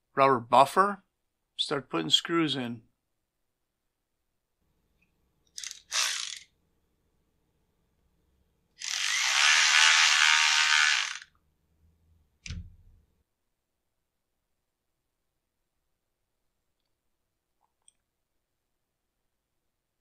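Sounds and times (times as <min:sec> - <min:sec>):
electric ratchet running screw: 0:05.6 - 0:06.5, 0:08.8 - 0:11.3.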